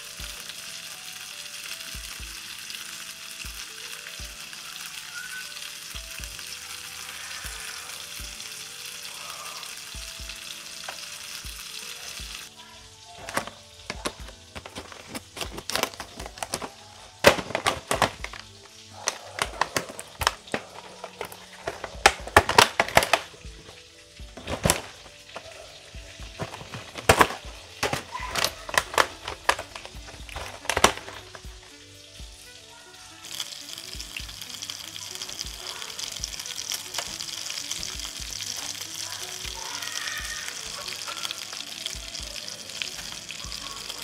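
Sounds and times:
water boiling in a pot: 0.0 - 44.0
plastic trays crackling: 13.0 - 31.8, 35.1 - 44.0.

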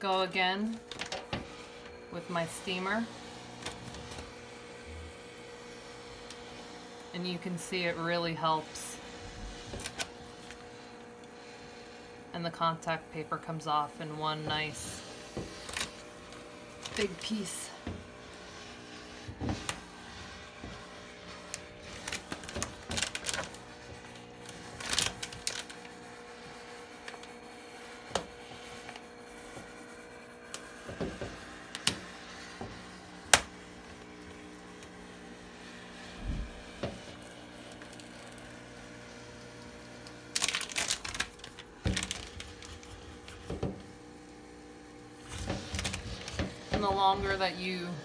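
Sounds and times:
garment steamer humming: 0.0 - 48.0
paper crinkling and crackling: 0.8 - 1.9, 9.6 - 11.5, 15.5 - 17.6, 19.3 - 32.5, 36.1 - 44.0, 45.2 - 47.4.

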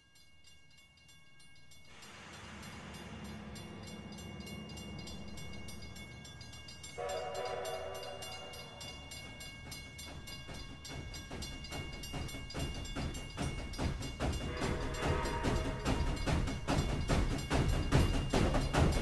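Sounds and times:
hissing rumble of steam: 1.9 - 6.4
train whistle: 6.8 - 9.2, 14.4 - 16.5.

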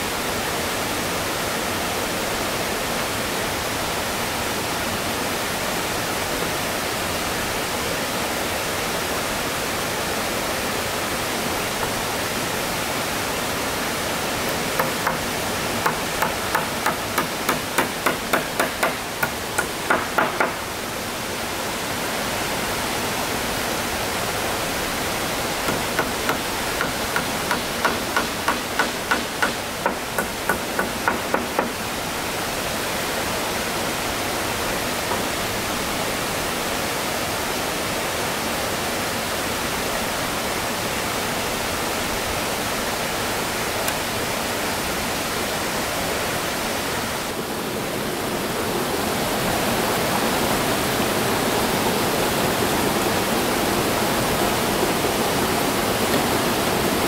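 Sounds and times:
steady rushing hiss: 0.0 - 37.6, 40.0 - 57.0
hammer driving nails into wood: 14.5 - 20.7, 25.7 - 31.8.

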